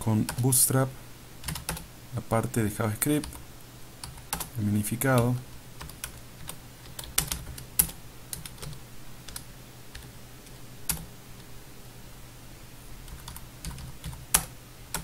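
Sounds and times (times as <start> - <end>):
faint low hum: 0.0 - 15.0
computer keyboard typing: 1.4 - 1.8, 4.0 - 4.5, 5.1 - 10.1, 10.9 - 11.1, 13.1 - 15.0.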